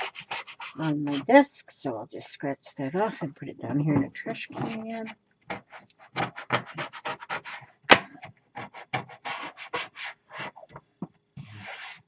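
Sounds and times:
scratching on hard desktop: 0.0 - 1.4, 4.5 - 7.6, 8.6 - 10.8, 11.4 - 12.0.

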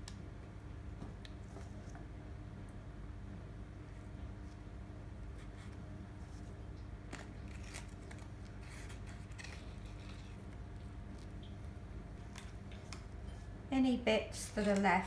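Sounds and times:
low steady hum: 0.0 - 15.0
paper crinkling: 7.1 - 11.4.

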